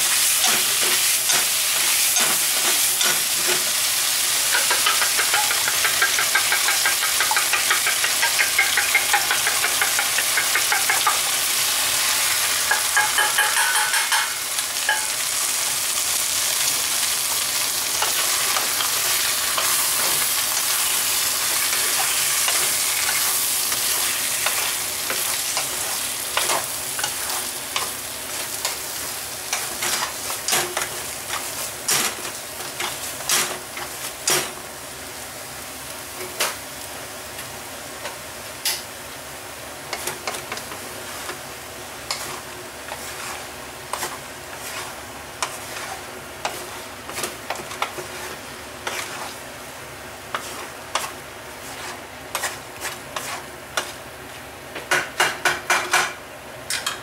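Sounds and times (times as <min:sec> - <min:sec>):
food sizzling in frying pan: 0:00.0 - 0:57.0
spatula knocking on pan: 0:04.5 - 0:11.2, 0:12.7 - 0:15.1
wooden spatula scraping pan: 0:42.1 - 0:49.4, 0:50.3 - 0:54.0.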